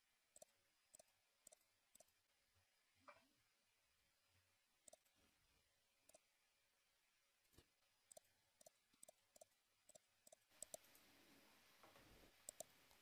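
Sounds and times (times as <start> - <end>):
computer mouse and keyboard clicks: 4.9 - 5.1, 7.5 - 11.1, 12.4 - 13.0.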